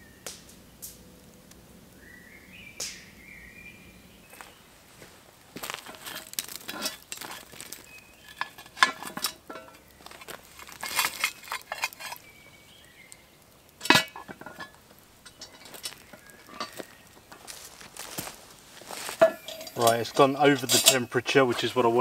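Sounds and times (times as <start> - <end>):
metal clinks and scrapes: 5.7 - 12.3, 13.8 - 17.6, 18.9 - 21.7
loud metal clanks: 13.8 - 16.9, 19.2 - 21.0.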